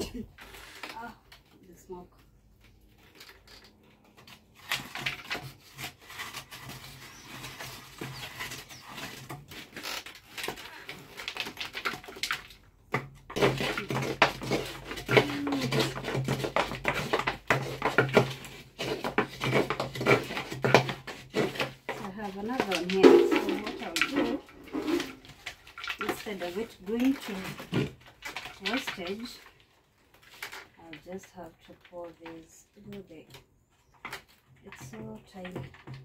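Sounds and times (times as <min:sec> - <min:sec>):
stick scraping inside gourd: 0:03.0 - 0:12.6, 0:13.3 - 0:29.3.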